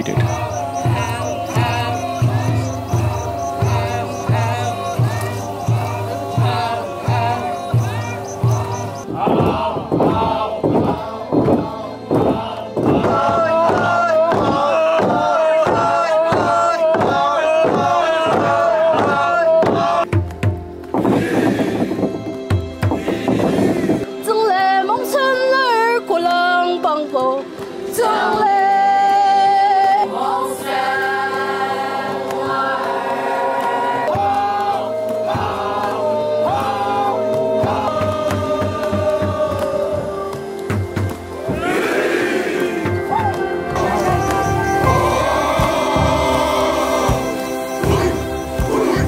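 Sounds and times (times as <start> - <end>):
men chanting in unison: 0.0 - 20.1, 21.0 - 22.3, 22.9 - 24.1, 30.1 - 40.6, 41.4 - 49.0
log drum beating: 0.0 - 24.1, 34.0 - 49.0.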